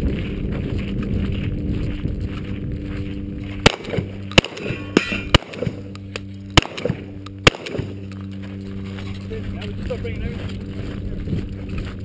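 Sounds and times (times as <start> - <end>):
shotgun shots: 3.6 - 5.9, 6.5 - 8.1.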